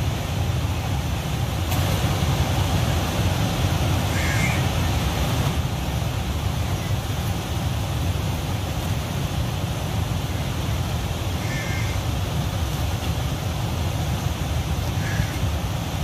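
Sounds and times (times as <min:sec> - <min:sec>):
floodwater rushing with low rumble: 0:00.0 - 0:16.0
crow cawing faintly: 0:04.1 - 0:04.8, 0:11.4 - 0:12.0, 0:14.9 - 0:15.5.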